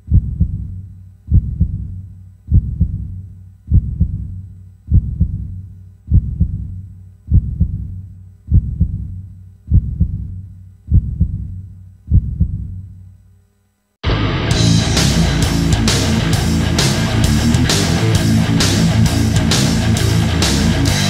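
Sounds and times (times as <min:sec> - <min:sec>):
heartbeat thumps: 0:00.0 - 0:13.0.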